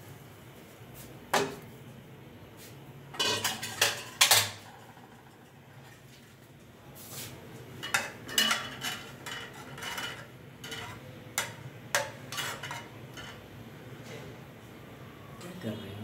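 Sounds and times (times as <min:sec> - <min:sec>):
metal ladle clinking in pot: 0:07.8 - 0:13.4.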